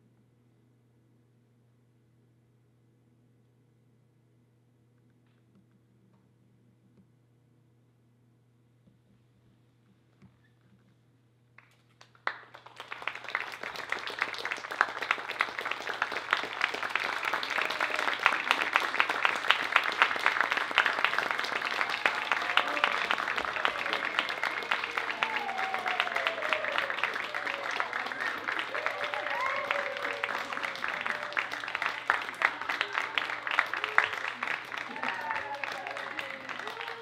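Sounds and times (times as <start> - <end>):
crowd clapping: 11.6 - 37.0
voices calling out: 20.5 - 37.0.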